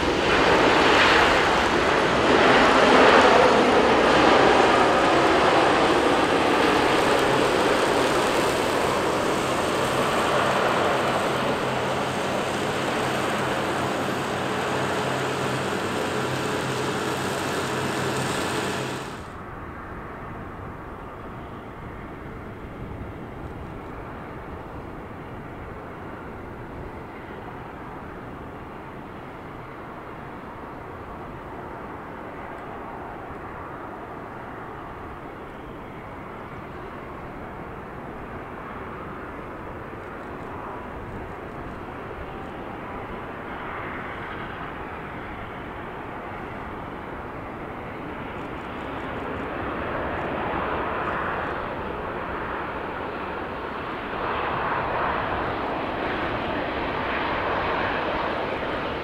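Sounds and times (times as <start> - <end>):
steady low hum: 0.0 - 19.4
jet engines roaring: 0.0 - 59.0.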